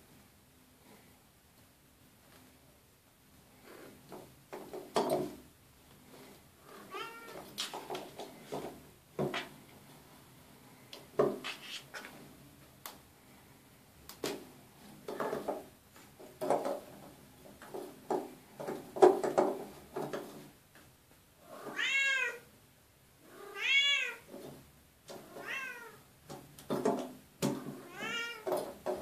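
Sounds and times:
cat meowing: 6.8s - 7.4s, 21.6s - 22.5s, 23.3s - 24.3s, 25.3s - 26.0s, 27.8s - 28.5s.

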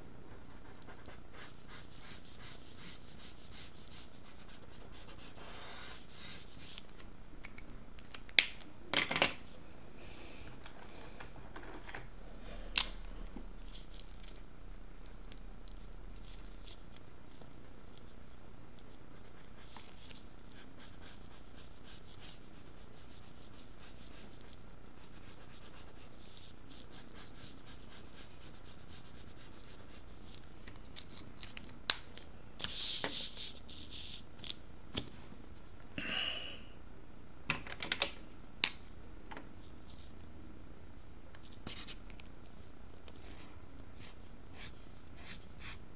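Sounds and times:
marker scratching on paper: 0.5s - 6.8s, 18.9s - 30.4s, 41.6s - 42.0s, 44.0s - 45.8s
hand and paper rustling: 13.6s - 31.7s.

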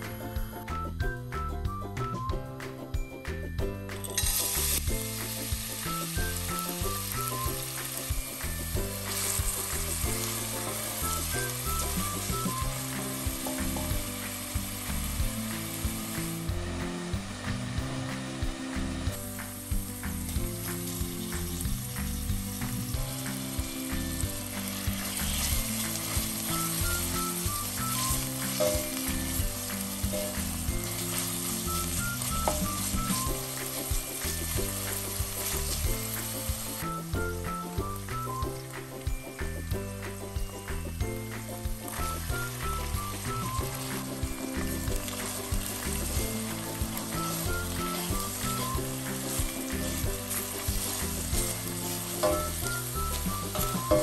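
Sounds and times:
light background music: 0.0s - 54.0s
vegetables sizzling in hot oil: 3.8s - 54.0s
wooden spoon stirring: 43.7s - 54.0s.

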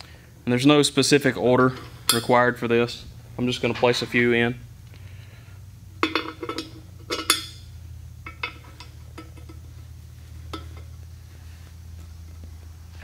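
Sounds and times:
metal adapters clinking on metal plate: 6.0s - 7.6s, 8.2s - 9.6s, 10.5s - 10.9s.

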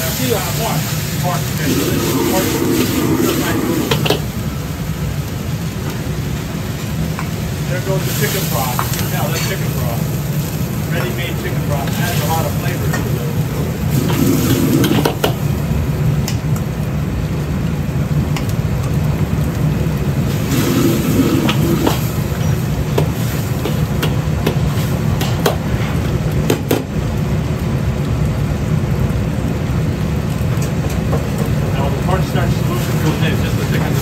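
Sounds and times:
sauce sizzling: 0.0s - 34.0s
wok burner rushing: 0.0s - 34.0s
metal ladle scraping wok: 13.9s - 15.2s, 20.3s - 24.0s.

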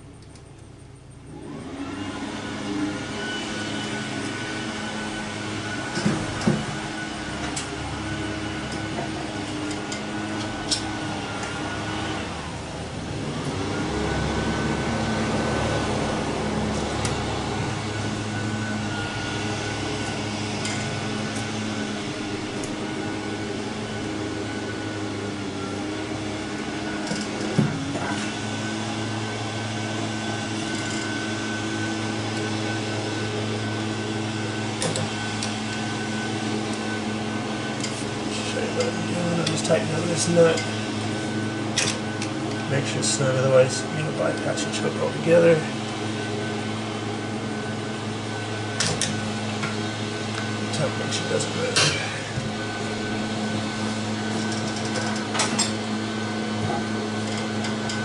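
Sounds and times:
machine hum: 0.0s - 58.0s
hand tools clicking on metal: 9.6s - 10.9s.

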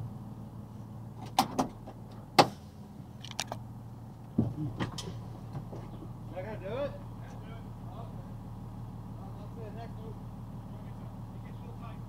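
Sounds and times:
truck engine idling: 0.0s - 12.0s
truck door clicks and knocks: 1.2s - 2.6s.

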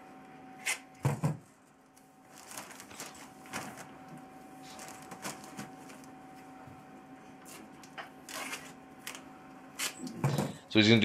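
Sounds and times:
faint steady hum: 0.0s - 11.0s
plastic sheeting rustling and crinkling: 2.2s - 6.1s.

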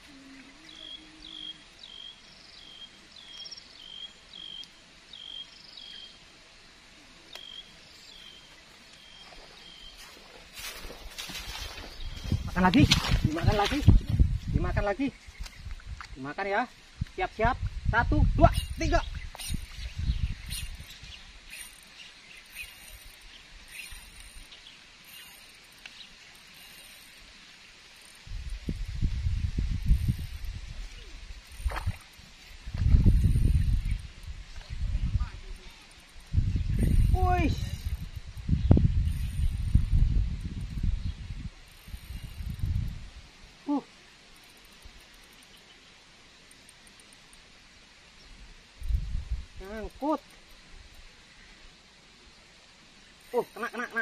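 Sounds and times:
faint outdoor background noise: 0.0s - 54.0s
bird chirps: 0.1s - 6.2s, 7.4s - 10.2s, 18.5s - 27.2s
low rumble on microphone: 10.9s - 14.8s, 28.2s - 43.3s, 48.8s - 49.6s
faint high hiss: 14.8s - 54.0s.

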